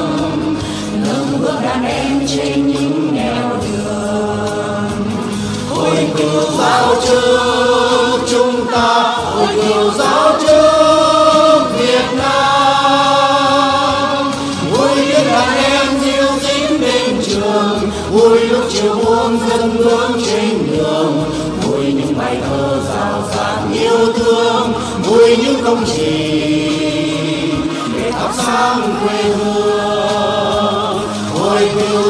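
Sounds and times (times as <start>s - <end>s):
two men singing together: 0.0s - 32.0s.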